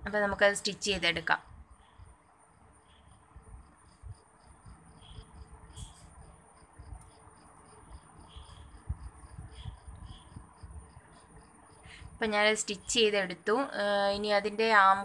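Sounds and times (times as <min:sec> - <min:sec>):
cricket chirping: 0:00.1 - 0:15.0.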